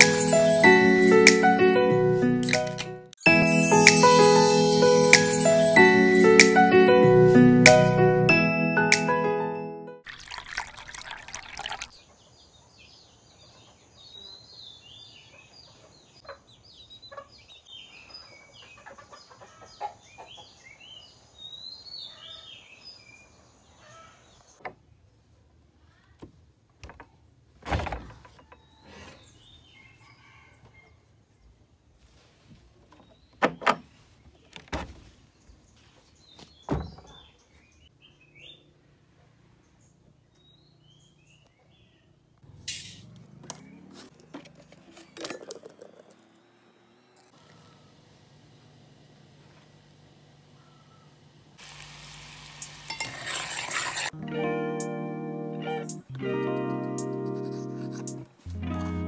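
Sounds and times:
soft intro music: 0.0s - 10.0s, 54.2s - 59.0s
sharp knocks and thumps: 36.7s - 37.2s
birds chirping: 39.5s - 42.5s, 50.5s - 51.2s.

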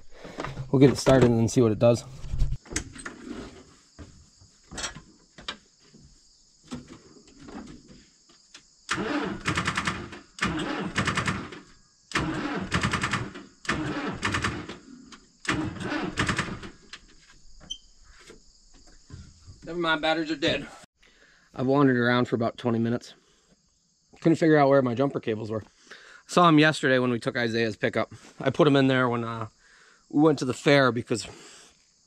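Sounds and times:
tractor starter cranking engine: 8.9s - 16.9s.

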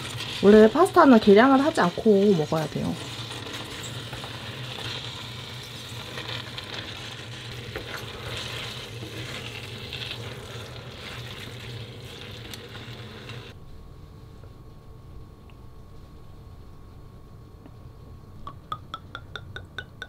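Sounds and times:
food sizzling in a frying pan: 0.0s - 13.6s
low steady hum: 7.4s - 20.0s.

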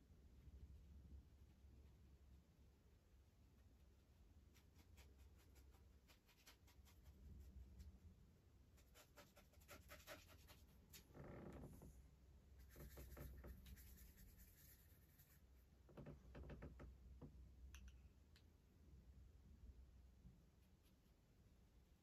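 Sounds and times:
brushing paint on palette: 3.5s - 11.2s, 11.8s - 15.8s, 20.4s - 21.5s
paintbrush strokes on canvas: 4.4s - 8.0s, 12.5s - 15.7s.

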